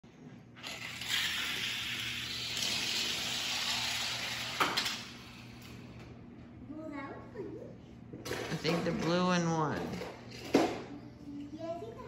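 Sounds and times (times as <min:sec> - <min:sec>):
toy cars clattering: 0:00.6 - 0:05.5
toy cars rolling on plastic track: 0:00.6 - 0:05.6.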